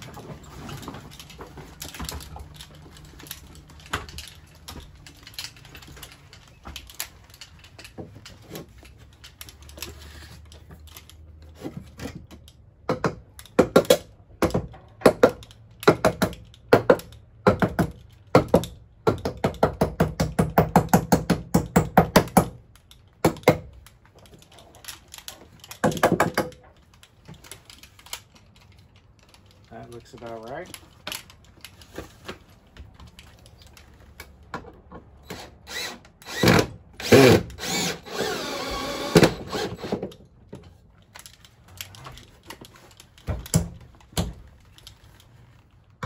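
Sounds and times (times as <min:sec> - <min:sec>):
handling noise: 0:00.0 - 0:12.2
power driver driving screws: 0:35.2 - 0:40.1.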